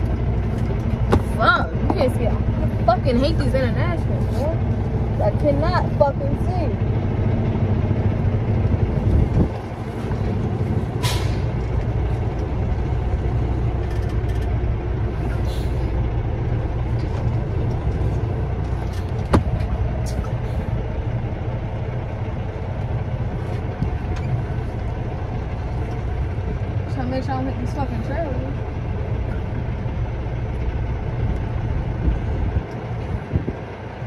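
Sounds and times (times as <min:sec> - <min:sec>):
diesel engine rumbling: 0:00.0 - 0:34.0
air brake hiss: 0:11.0 - 0:11.6, 0:15.4 - 0:15.9.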